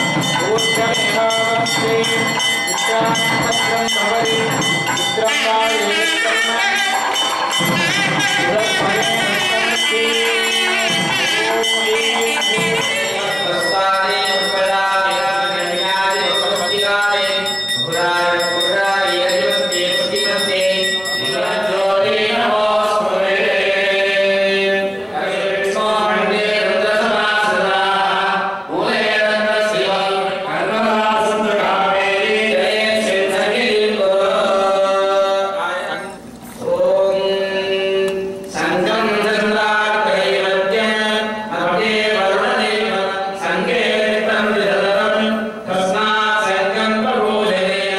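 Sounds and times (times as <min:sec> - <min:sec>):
musical accompaniment: 0:00.0 - 0:16.0
voices singing a chant: 0:00.0 - 0:47.9.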